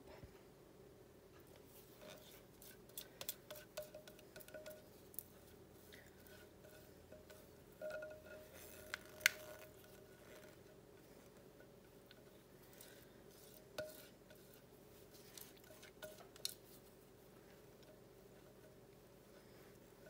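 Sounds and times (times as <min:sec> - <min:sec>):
spatula clinking glass bowl: 0:02.6 - 0:08.9, 0:12.8 - 0:16.8.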